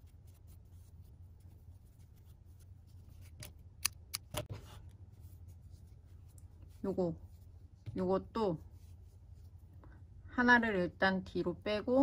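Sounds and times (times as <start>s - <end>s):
yarn handling sounds: 0.0s - 10.2s
low steady hum: 0.0s - 12.0s
sharp clicks: 3.8s - 4.5s.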